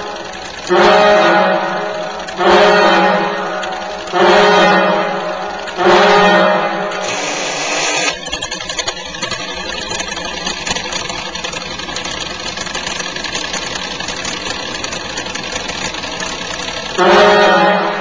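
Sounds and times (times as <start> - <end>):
mechanical engine running: 0.0 - 18.0
fire alarm diaphone horn blast: 0.7 - 7.8, 17.0 - 18.0.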